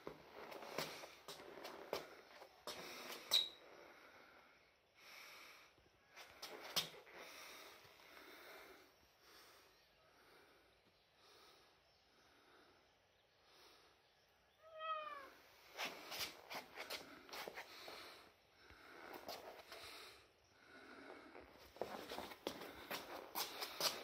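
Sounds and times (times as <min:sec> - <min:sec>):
person breathing heavily: 0:00.6 - 0:14.1, 0:15.6 - 0:24.0
cat meowing: 0:14.6 - 0:15.4.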